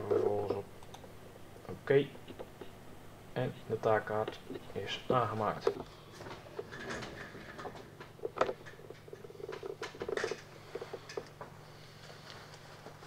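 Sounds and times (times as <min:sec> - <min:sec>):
steady low hum: 0:00.0 - 0:13.0
objects clicking and knocking: 0:05.6 - 0:11.5.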